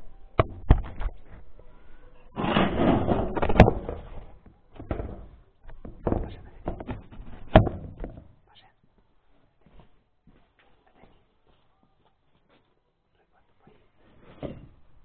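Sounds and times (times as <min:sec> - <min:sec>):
rustling scrape: 0:02.4 - 0:04.4
knocks on wood: 0:05.8 - 0:08.3.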